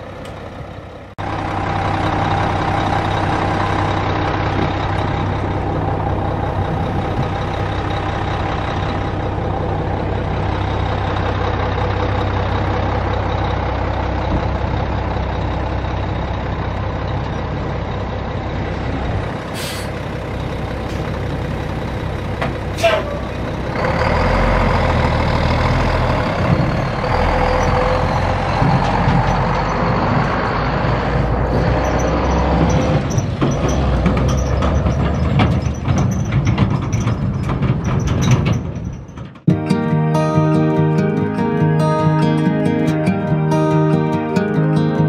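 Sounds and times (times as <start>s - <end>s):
truck engine running: 0.0s - 45.0s
air brake hiss: 19.5s - 20.0s.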